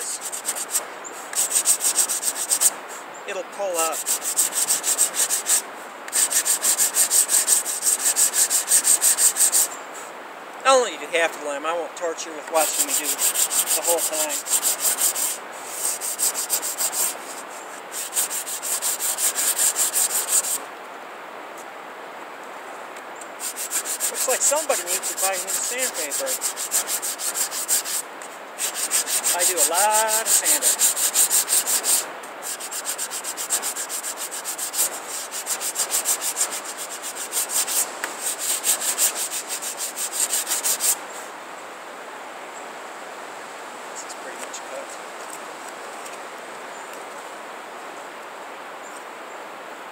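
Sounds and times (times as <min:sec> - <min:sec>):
sandpaper rubbing on wood: 0:00.0 - 0:09.7, 0:12.5 - 0:20.6, 0:23.4 - 0:41.0.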